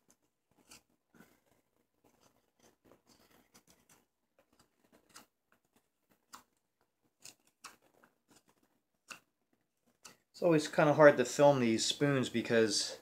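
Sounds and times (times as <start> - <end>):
knife scraping wood: 0.5 - 6.5, 7.2 - 9.2.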